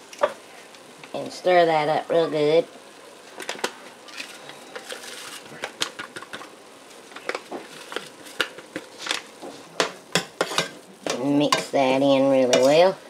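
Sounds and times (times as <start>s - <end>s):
faint sizzle from pot: 0.0s - 13.0s
paper packet crinkling: 4.1s - 6.0s.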